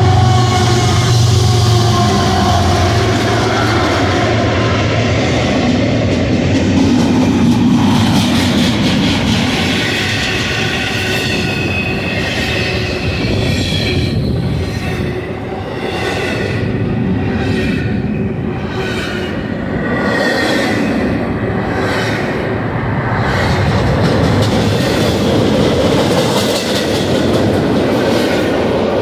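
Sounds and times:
freight cars rumbling: 0:00.0 - 0:29.0
locomotive engine drone: 0:00.0 - 0:29.0
wheels squealing: 0:08.4 - 0:22.3
wheels clacking over rail: 0:23.1 - 0:29.0.

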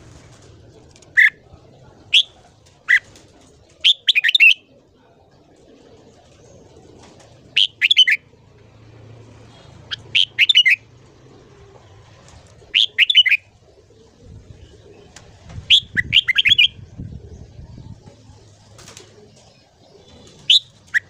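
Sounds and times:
bird singing whistled phrases: 0:09.9 - 0:10.8, 0:12.8 - 0:13.4.

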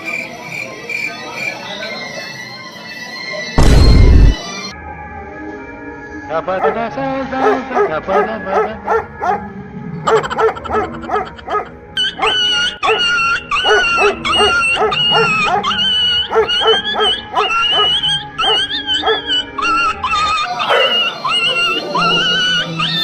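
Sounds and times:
dog barking: 0:06.6 - 0:06.8, 0:07.4 - 0:09.5, 0:10.1 - 0:19.3, 0:20.6 - 0:22.2
music with high wavering melody: 0:09.5 - 0:23.0.

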